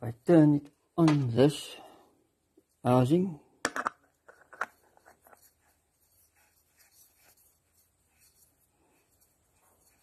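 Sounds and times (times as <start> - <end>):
oil filter rubbing and scraping: 4.3 - 10.0.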